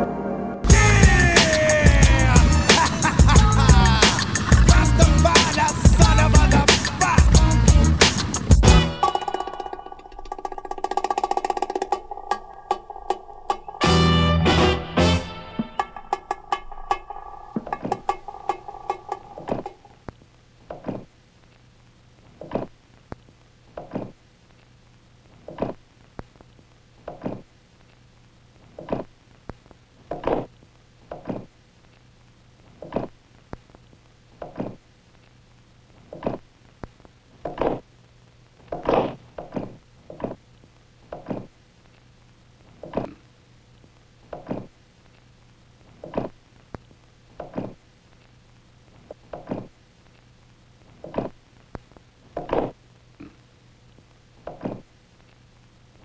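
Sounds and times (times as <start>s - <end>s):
music: 0.0s - 19.9s.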